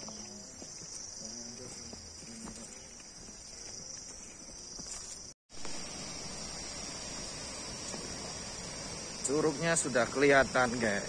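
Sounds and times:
footsteps on dirt path: 0:00.0 - 0:05.8
insects droning: 0:00.0 - 0:11.0.

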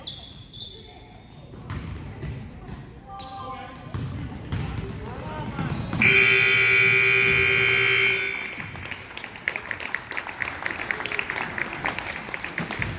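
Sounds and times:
scoreboard buzzer: 0:06.0 - 0:08.6
people clapping: 0:08.2 - 0:12.9.

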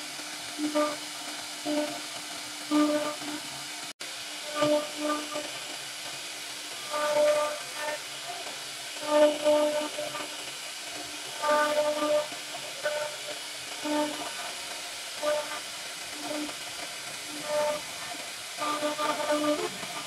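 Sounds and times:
humming spindle tone: 0:00.0 - 0:03.6, 0:04.4 - 0:05.6, 0:06.8 - 0:08.3, 0:09.0 - 0:20.0
router cutting wood: 0:17.3 - 0:20.0.

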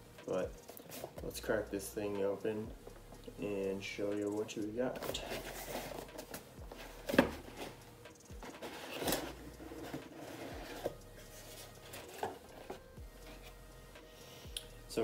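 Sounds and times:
cardboard box knocks and scrapes: 0:07.0 - 0:07.8.

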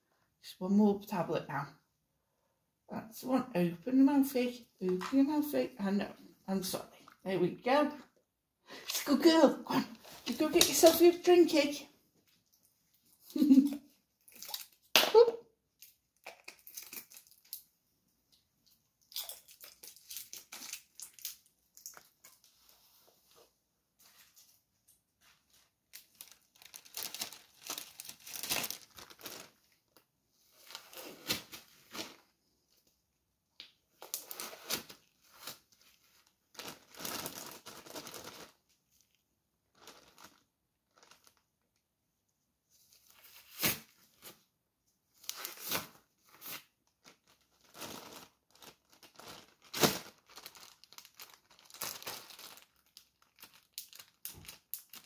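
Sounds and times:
plastic bag crinkling: 0:25.3 - 0:30.0, 0:34.0 - 0:38.6, 0:39.7 - 0:41.5, 0:47.0 - 0:55.0.

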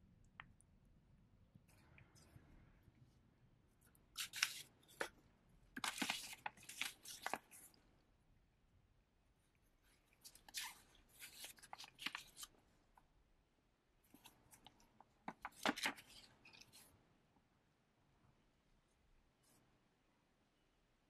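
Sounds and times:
paper crinkling and rustling: 0:04.2 - 0:05.2, 0:05.8 - 0:07.7, 0:10.2 - 0:12.5, 0:14.1 - 0:16.9.

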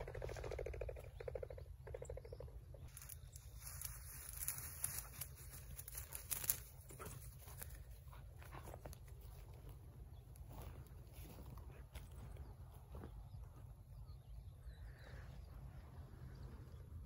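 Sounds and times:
dry grass rustling: 0:02.9 - 0:13.1.

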